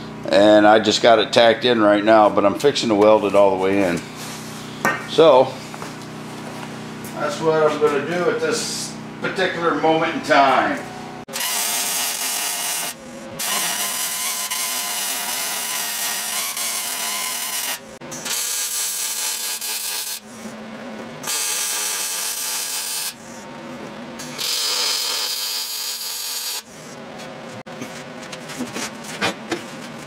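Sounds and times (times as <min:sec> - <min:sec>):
welder arc crackling: 0:21.3 - 0:23.2, 0:24.4 - 0:26.7.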